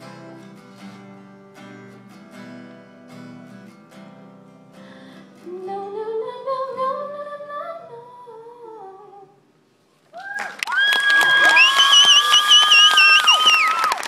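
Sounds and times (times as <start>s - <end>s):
ringing acoustic guitar: 0.0s - 5.9s
audience clapping and whistling: 10.2s - 14.0s.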